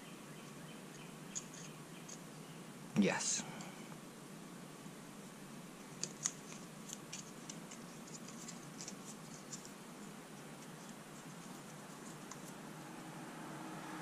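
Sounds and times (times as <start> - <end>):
thread tape crackling: 5.8 - 12.6.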